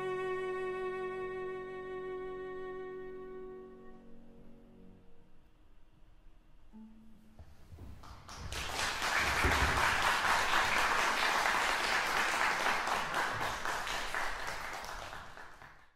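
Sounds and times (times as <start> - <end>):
cello and piano: 0.0 - 5.4
audience applauding: 8.0 - 15.9.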